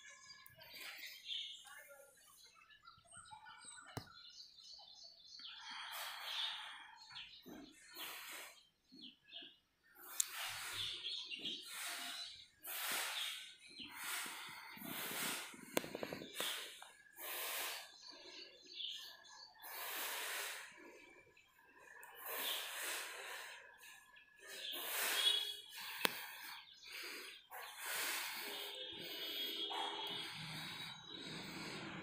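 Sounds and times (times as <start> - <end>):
person breathing: 5.4 - 8.7, 10.0 - 32.0.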